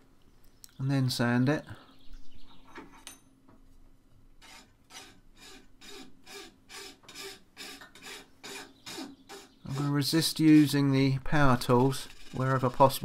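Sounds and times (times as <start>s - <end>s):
hand file rasping on antler: 4.4s - 13.0s.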